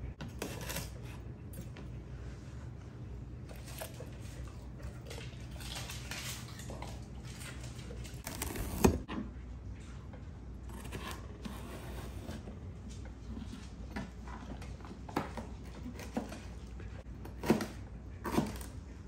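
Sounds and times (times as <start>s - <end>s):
knife scraping celery: 0.2s - 1.2s, 8.2s - 9.1s, 10.7s - 12.5s.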